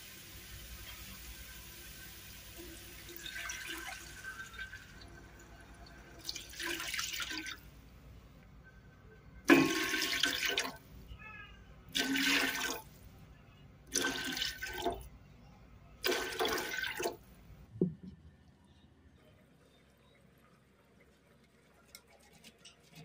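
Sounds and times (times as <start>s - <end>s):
water pouring into a pot: 0.0s - 7.6s, 9.5s - 10.8s, 12.0s - 12.9s, 13.9s - 15.0s, 16.0s - 17.2s.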